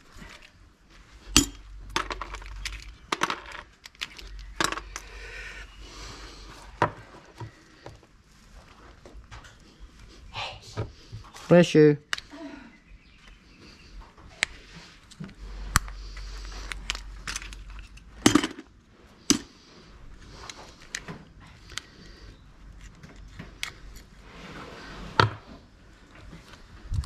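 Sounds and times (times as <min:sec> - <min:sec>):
small metal clicks and scrapes: 0:02.0 - 0:05.1, 0:14.4 - 0:18.1, 0:20.4 - 0:24.2.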